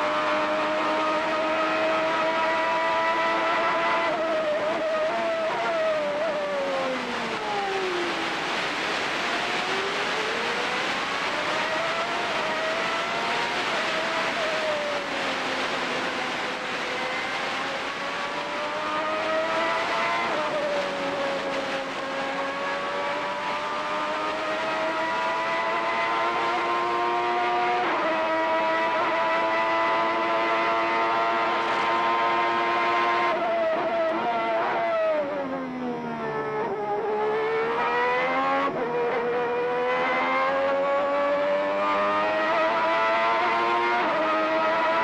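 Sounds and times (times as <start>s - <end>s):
racing car engine: 0.0s - 45.0s
wind and road noise: 0.0s - 45.0s.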